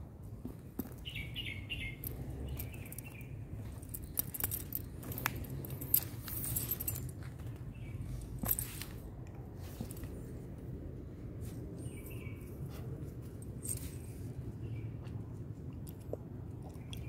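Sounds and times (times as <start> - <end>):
light metallic jingling: 1.0 - 9.0, 13.2 - 14.4.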